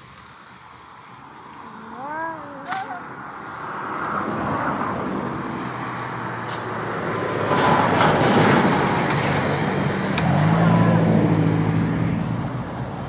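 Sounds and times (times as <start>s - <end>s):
vehicle passing by: 0.0s - 13.0s
sharp snaps: 2.6s - 3.0s, 10.1s - 10.4s.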